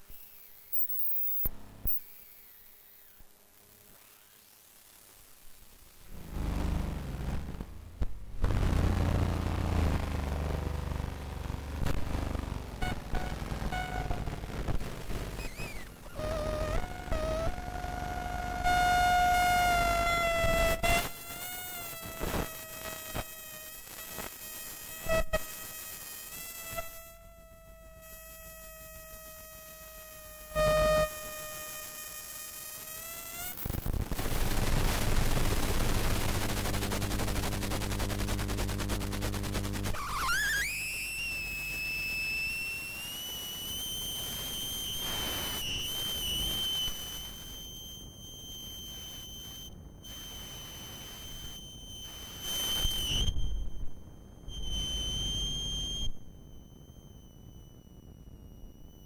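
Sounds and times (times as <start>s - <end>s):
harsh dense electronic noise: 0.0s - 3.2s, 6.1s - 15.8s
shrill electronic tones: 0.0s - 3.2s, 15.3s - 20.7s, 39.9s - 59.0s
low hum: 6.1s - 14.5s.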